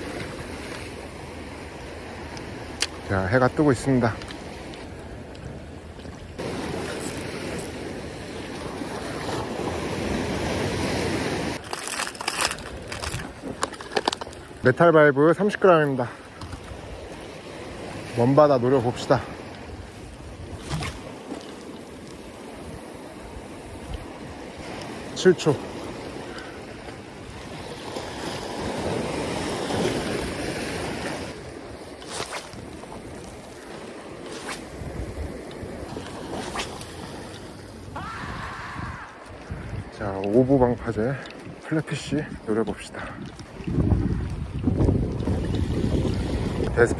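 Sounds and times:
waves washing against rocks: 6.4s - 42.6s
wind on microphone: 19.3s - 41.6s, 42.3s - 46.9s.

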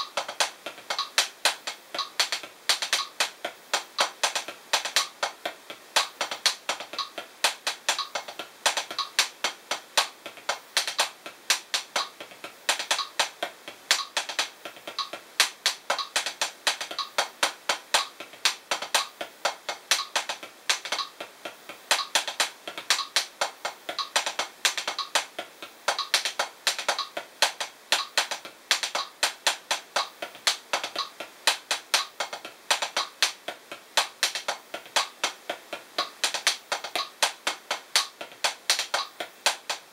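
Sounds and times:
drumsticks tapping practice pad: 0.0s - 39.9s.

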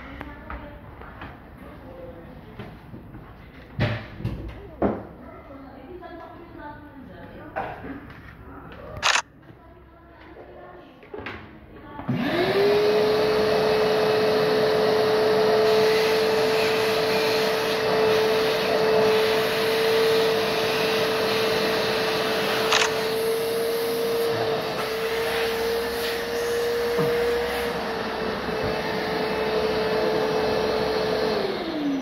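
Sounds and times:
sharp click: 9.0s - 9.2s, 22.7s - 23.0s
electric motor running: 12.1s - 32.0s.

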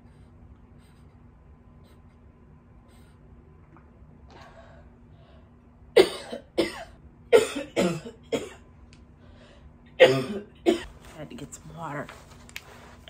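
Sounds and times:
woman coughing: 6.0s - 8.6s, 10.0s - 11.0s.

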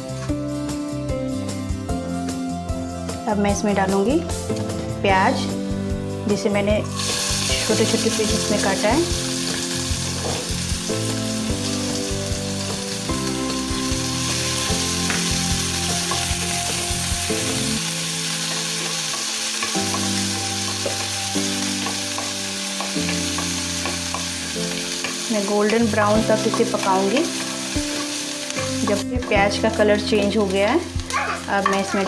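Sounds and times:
onions sizzling in hot oil: 6.6s - 32.0s.

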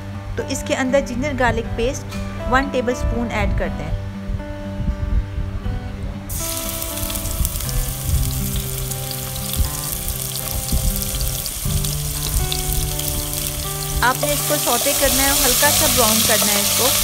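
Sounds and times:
paste sizzling in hot oil: 6.3s - 17.0s.

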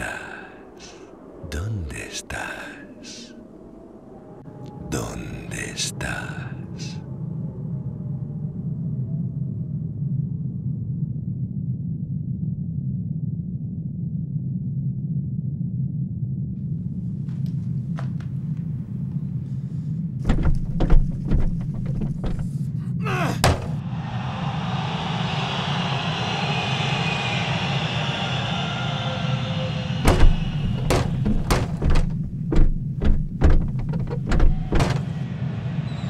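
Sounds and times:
steady low hum: 17.8s - 23.8s, 30.0s - 35.2s
sharp knocks and thuds: 20.2s - 22.6s, 23.3s - 23.8s, 30.0s - 35.2s.

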